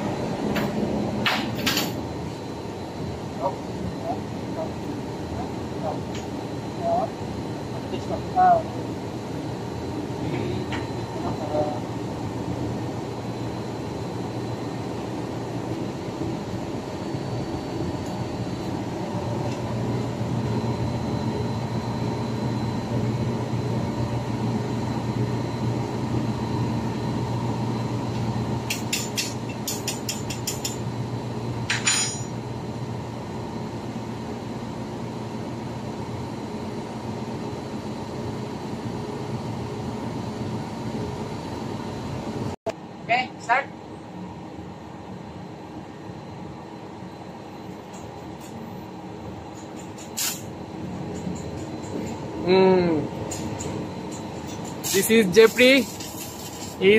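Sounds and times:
machinery drone: 0.0 - 29.8.

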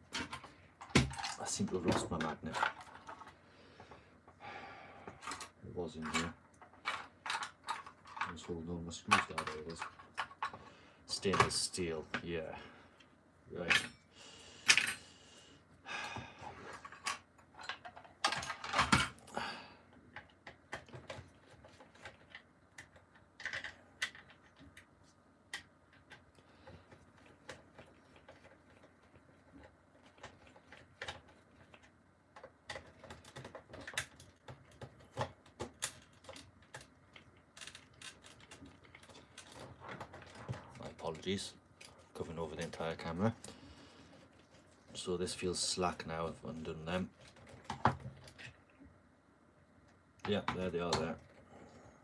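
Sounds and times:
tools clattering and rustling: 16.5 - 19.3.

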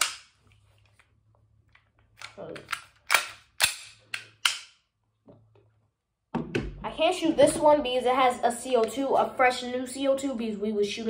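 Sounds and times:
sharp mechanical clacks of pistol: 2.7 - 4.8.

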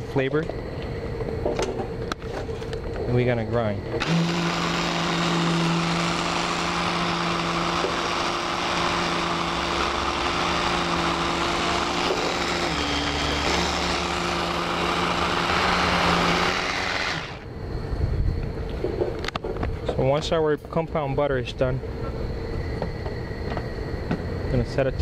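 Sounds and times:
blender chopper grinding butter: 4.0 - 17.5.

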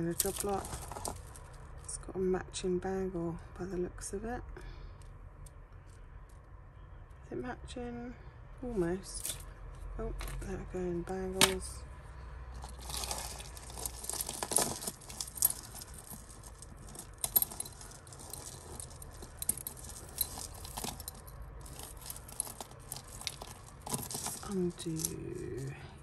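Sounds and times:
jewellery clinking and jangling: 0.0 - 2.0, 8.7 - 10.6, 11.2 - 26.0.

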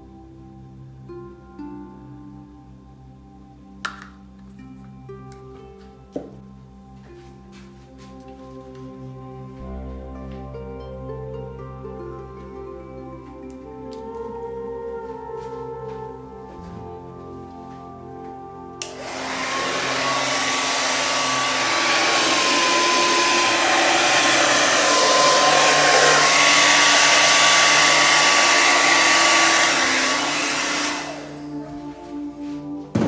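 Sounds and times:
hair dryer switch click: 18.8 - 20.8
hair dryer blowing with thin whine: 18.8 - 33.0.

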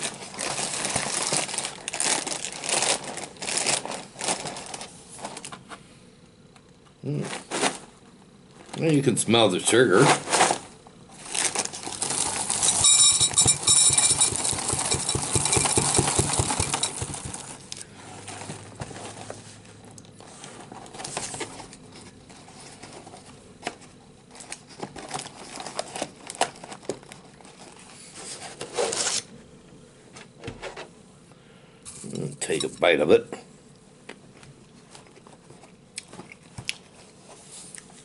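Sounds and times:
plastic bag crinkling: 0.0 - 5.5, 10.2 - 19.3, 24.3 - 27.9.

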